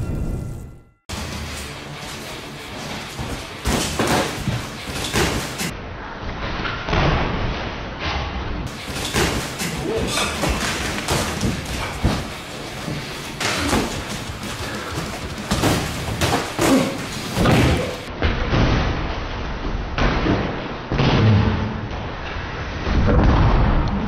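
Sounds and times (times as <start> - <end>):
boxing gloves punching: 8.8 - 18.0.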